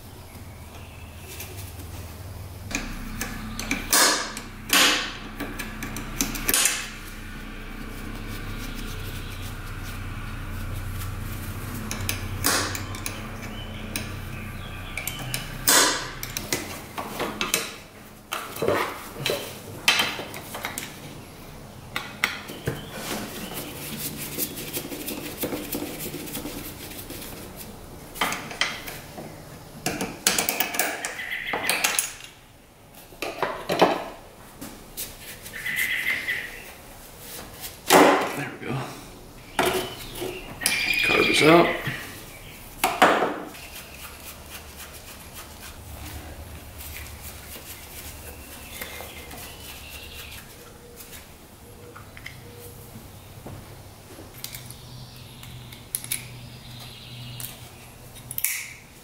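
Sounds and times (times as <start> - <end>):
low steady hum: 0.0 - 30.3.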